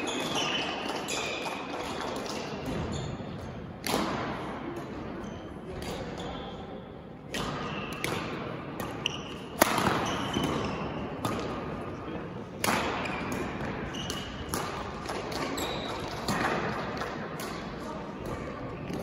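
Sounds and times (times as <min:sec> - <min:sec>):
rackets striking shuttlecock: 0:03.6 - 0:05.0, 0:07.3 - 0:11.9, 0:12.6 - 0:19.0
murmur of voices: 0:16.3 - 0:19.0.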